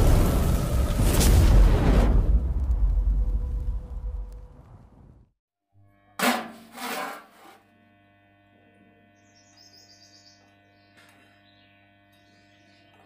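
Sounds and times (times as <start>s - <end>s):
bird chirping: 9.2s - 13.0s.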